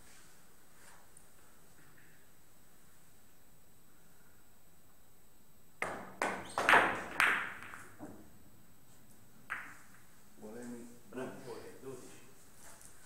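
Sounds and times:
billiard balls clicking: 0:05.8 - 0:08.3, 0:09.4 - 0:10.2
cue tip hitting ball: 0:05.8 - 0:08.3, 0:09.4 - 0:10.1.

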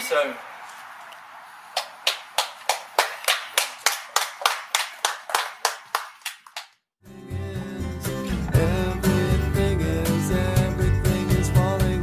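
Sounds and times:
hands clapping: 0:01.7 - 0:06.8
country guitar music: 0:07.0 - 0:12.0.

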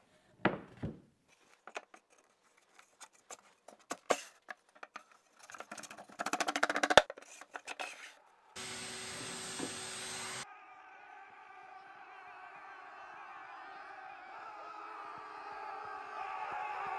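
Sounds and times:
wood rattling on wood: 0:03.7 - 0:07.8
wooden knocks and clicks: 0:03.7 - 0:07.9
steady machine noise: 0:08.6 - 0:10.4.

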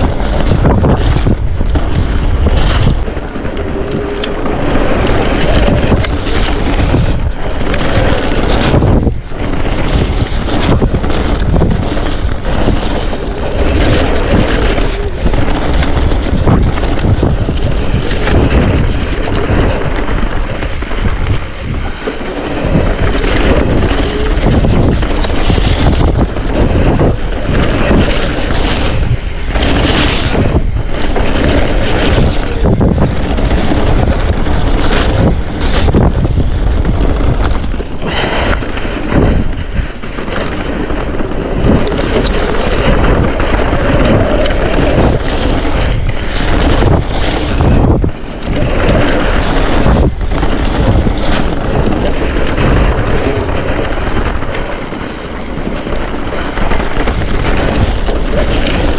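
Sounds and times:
bike tyre noise and rattling: 0:00.0 - 0:58.9
wind buffeting microphone: 0:00.0 - 0:58.9.

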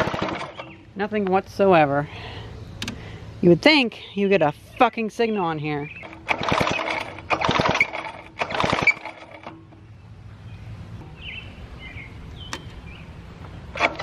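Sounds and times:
chainsaw pull-start cranking: 0:00.0 - 0:00.7, 0:06.0 - 0:09.6, 0:13.7 - 0:14.0
birds chirping: 0:00.3 - 0:07.2, 0:09.5 - 0:13.8.

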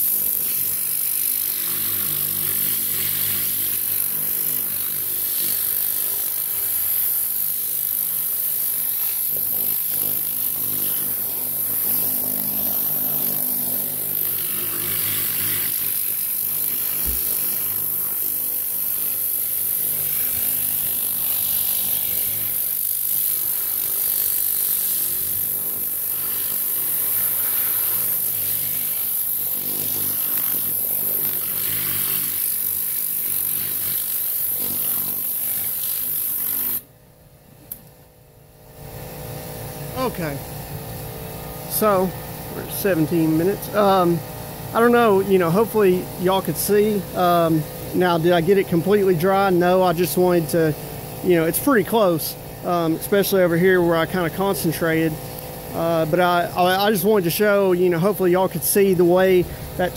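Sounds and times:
air gun hissing: 0:00.0 - 0:36.8, 0:38.8 - 0:59.9
generator engine drone: 0:37.4 - 0:59.9.

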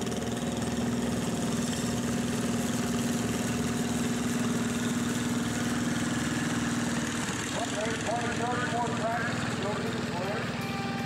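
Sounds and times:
garden tractor engine running: 0:00.0 - 0:11.0.

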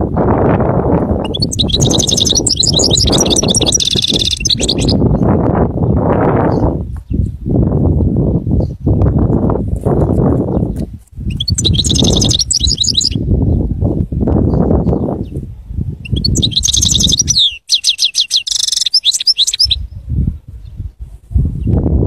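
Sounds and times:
goldfinch twittering song: 0:01.2 - 0:05.3, 0:10.5 - 0:13.2, 0:16.0 - 0:19.9.

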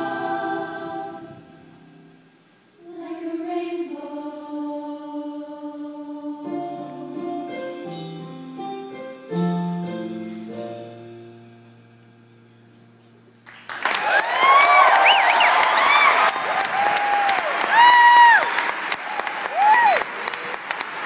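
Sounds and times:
children's choir singing: 0:00.0 - 0:01.8, 0:02.8 - 0:07.8
piano chords: 0:00.0 - 0:02.5, 0:06.3 - 0:13.5
applause: 0:13.4 - 0:21.0.

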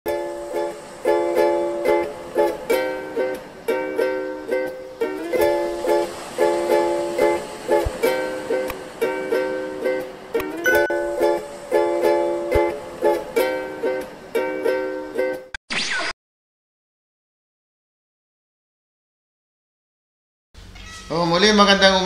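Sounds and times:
strummed string instrument music: 0:00.1 - 0:15.5.

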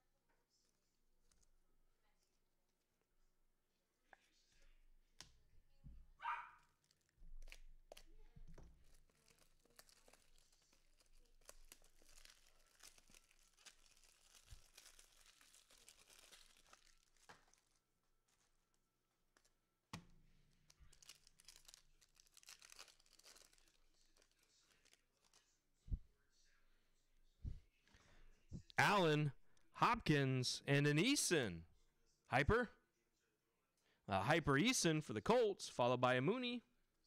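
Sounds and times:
foil wrappers crinkling and tearing: 0:06.8 - 0:18.8, 0:20.4 - 0:25.6.

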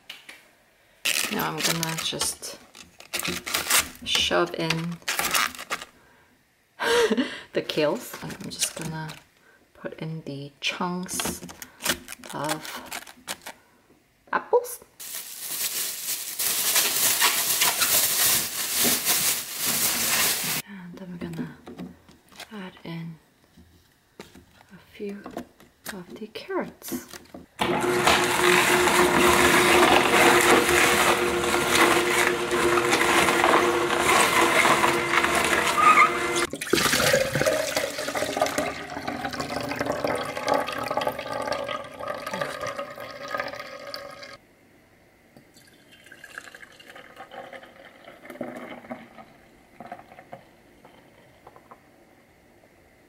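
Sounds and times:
faint liquid and handling sounds: 0:15.0 - 0:20.6
juicer motor humming: 0:27.6 - 0:44.2
juice splashing: 0:28.5 - 0:44.4.

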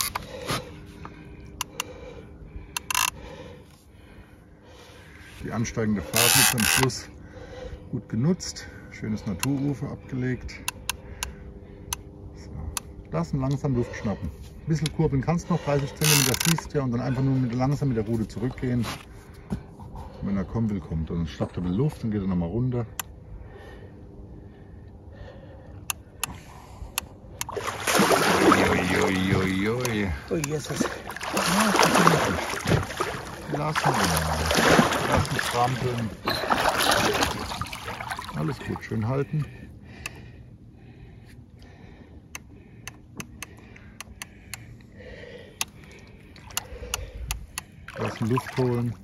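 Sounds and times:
low steady rumble: 0:00.0 - 0:49.0
fish splashing at surface: 0:27.5 - 0:29.3, 0:30.6 - 0:38.4.

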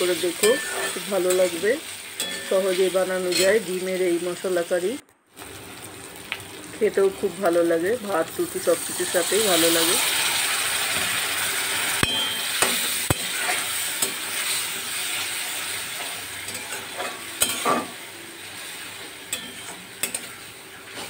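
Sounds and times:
masala sizzling in a pan: 0:00.0 - 0:21.0
metal spatula scraping pan: 0:00.4 - 0:01.5, 0:12.0 - 0:18.0.

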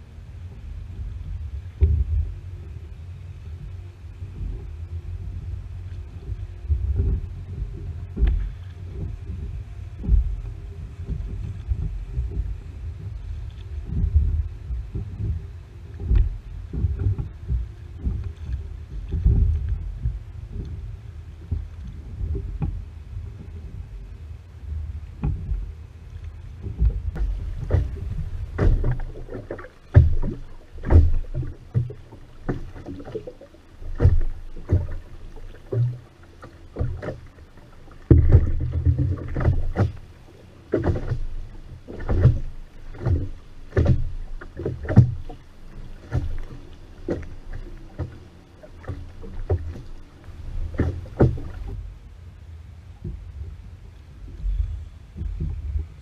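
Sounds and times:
low rumble of water and boat: 0:00.0 - 0:56.0
oars knocking and splashing: 0:03.6 - 0:23.8, 0:26.5 - 0:51.9.

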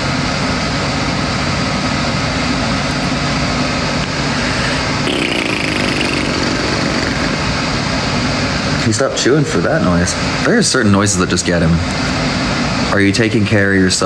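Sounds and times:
high rising whine: 0:02.5 - 0:11.2.

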